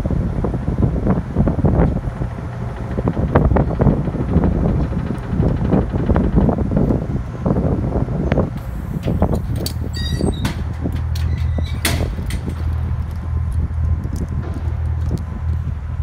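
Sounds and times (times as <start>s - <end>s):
metal clanks: 8.6s - 13.5s
engine idling: 8.6s - 16.0s.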